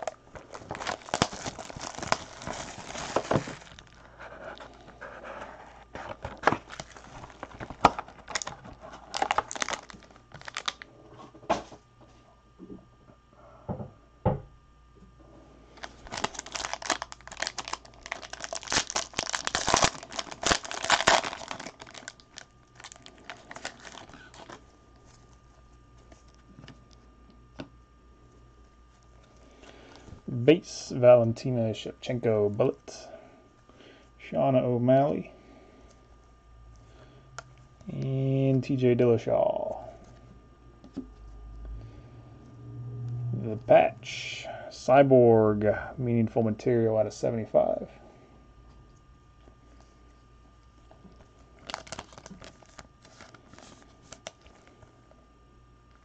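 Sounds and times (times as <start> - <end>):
plastic wrapper crinkling: 0.0 - 4.8, 6.0 - 10.9, 15.8 - 26.9, 50.6 - 54.8.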